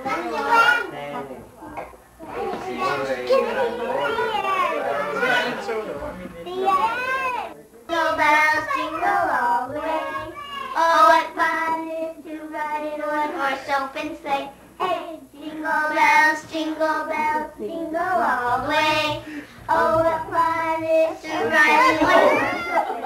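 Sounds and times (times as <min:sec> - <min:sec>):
child singing: 0:06.5 - 0:22.9.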